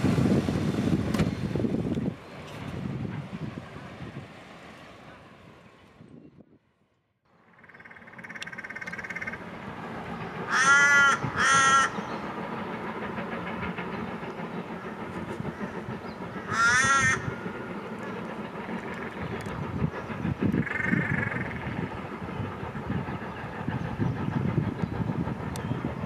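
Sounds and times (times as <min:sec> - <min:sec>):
crow cawing: 0:10.5 - 0:12.0, 0:16.5 - 0:17.3.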